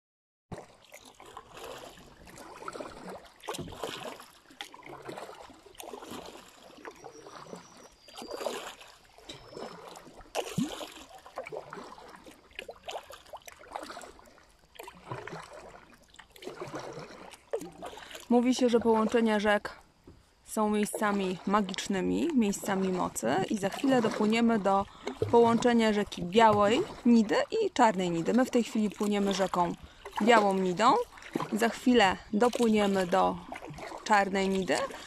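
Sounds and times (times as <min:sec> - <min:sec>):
paddle strokes in water: 0:00.5 - 0:35.0.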